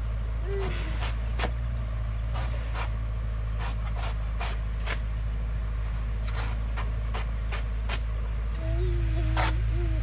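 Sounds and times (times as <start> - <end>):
steady low rumble: 0.0 - 10.0
hand tool scraping soil: 0.6 - 1.6, 2.3 - 3.0, 3.6 - 5.0, 5.9 - 8.1, 9.3 - 9.6.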